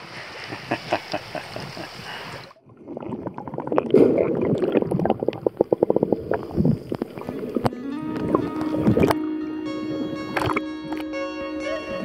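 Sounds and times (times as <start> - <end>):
seaside air ambience: 0.0 - 12.0
water churning and bubbling underwater: 1.8 - 11.2
dense crackling clicks: 3.1 - 9.2.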